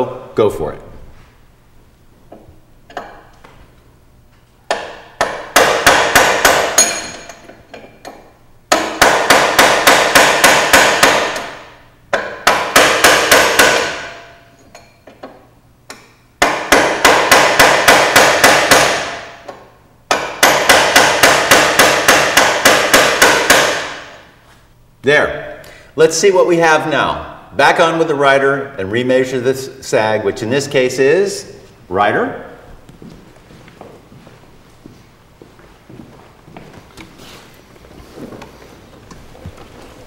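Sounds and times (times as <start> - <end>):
hammer tapping on steel drift: 4.7 - 14.2.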